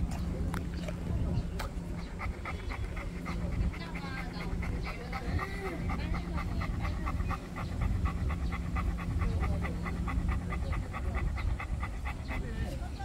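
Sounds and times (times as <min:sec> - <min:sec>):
dog panting rapidly: 0:00.0 - 0:13.0.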